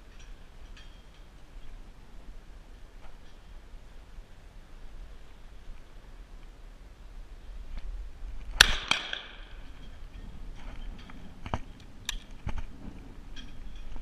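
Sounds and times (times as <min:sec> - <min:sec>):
shotgun shots: 0:08.6 - 0:09.4.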